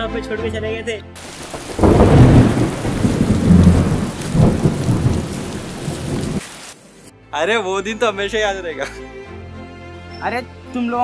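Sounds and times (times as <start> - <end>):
thunder rolling: 1.2 - 6.4
rain hissing: 1.2 - 7.1.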